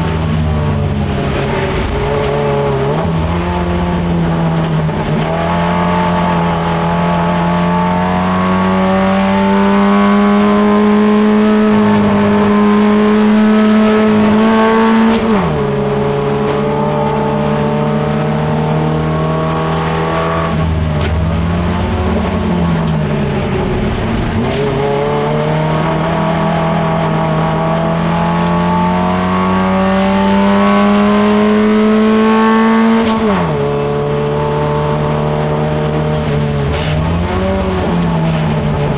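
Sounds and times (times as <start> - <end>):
race car engine revving: 0.0 - 38.9.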